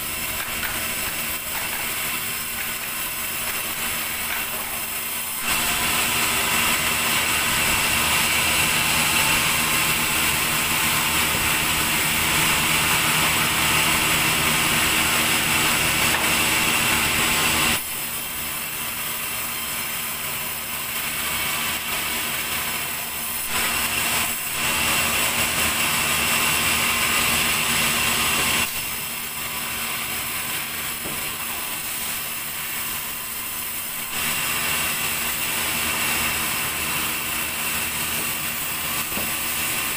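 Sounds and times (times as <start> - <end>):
band saw sawing log: 0.0 - 39.9.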